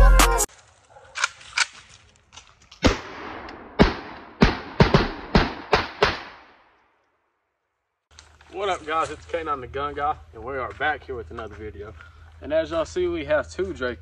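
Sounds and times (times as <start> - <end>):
pistol gunshots with echo: 2.8 - 6.7.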